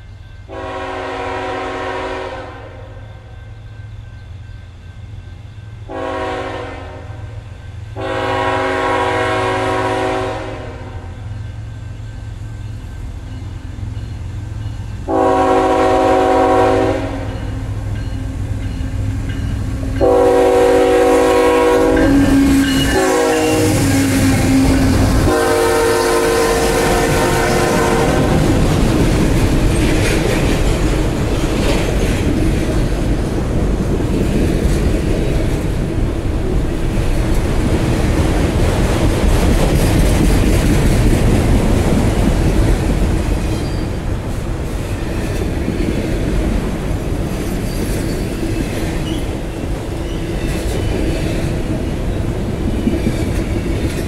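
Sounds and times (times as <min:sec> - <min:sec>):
locomotive air horn blasts: 0:00.5 - 0:03.0, 0:05.9 - 0:07.3, 0:08.0 - 0:11.1, 0:15.1 - 0:17.5, 0:20.0 - 0:28.6
freight cars rumbling and clacking: 0:26.9 - 0:54.0.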